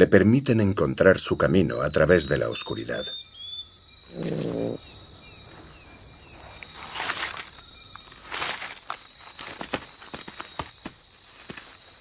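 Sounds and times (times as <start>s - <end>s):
high-pitched insect chorus: 0.0s - 12.0s
rustling: 5.5s - 12.0s.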